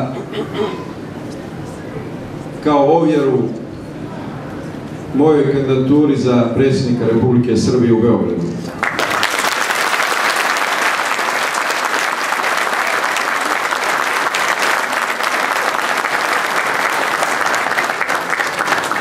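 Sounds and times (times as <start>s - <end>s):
audience applauding: 8.7s - 19.0s.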